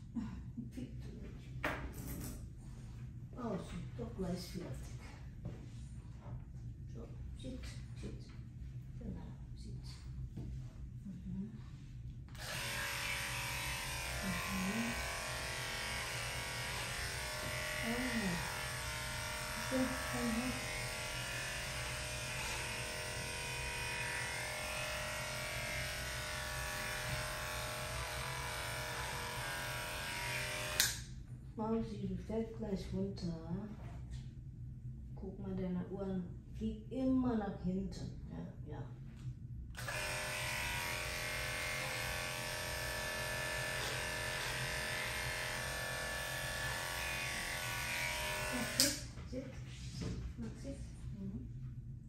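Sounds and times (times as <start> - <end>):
electric clipper humming: 12.3 - 31.1, 39.8 - 49.1.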